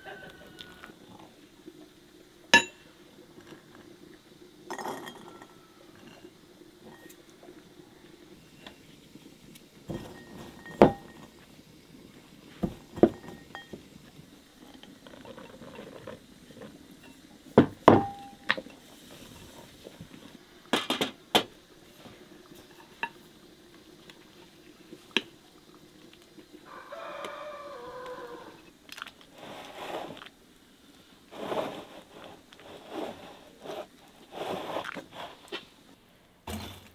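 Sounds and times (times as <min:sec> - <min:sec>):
metal utensil clinking on glass bowl: 0:04.7 - 0:06.3.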